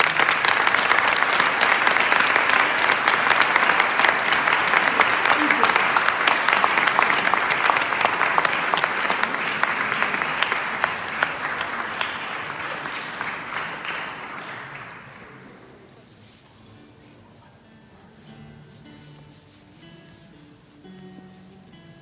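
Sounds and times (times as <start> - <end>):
audience applauding: 0.0 - 15.7.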